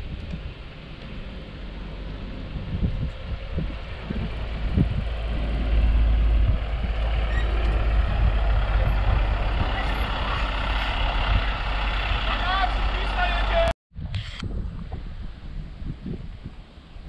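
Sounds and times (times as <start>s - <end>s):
bus diesel engine passing by: 0.4s - 13.7s.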